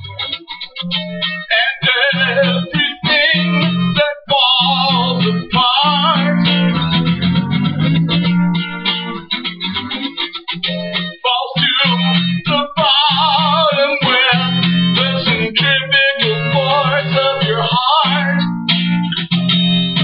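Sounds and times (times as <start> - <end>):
electric guitar lead lines: 0.0 - 20.0
steady low bass notes: 6.2 - 8.6.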